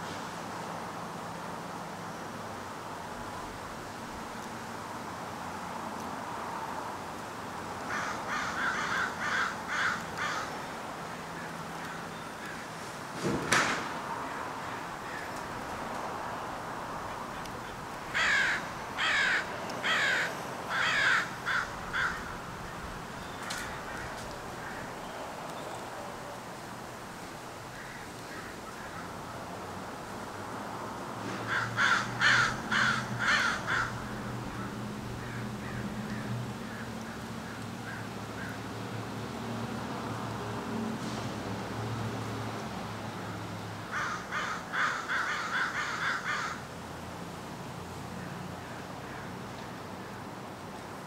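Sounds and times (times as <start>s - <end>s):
crow cawing: 7.9s - 10.7s, 14.6s - 15.4s, 17.3s - 22.8s, 23.4s - 25.0s, 27.7s - 29.2s, 31.4s - 38.6s, 43.9s - 46.7s.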